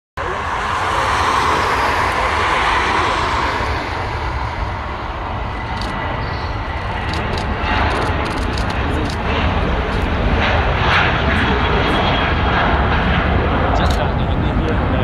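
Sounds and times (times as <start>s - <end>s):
jet engines roaring: 0.2s - 15.0s.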